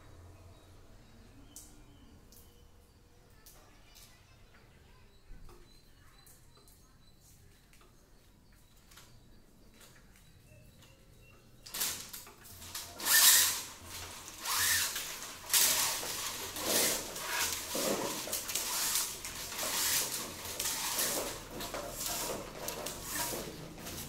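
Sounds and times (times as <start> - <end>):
electrical wires rustling and scraping: 11.6 - 24.0.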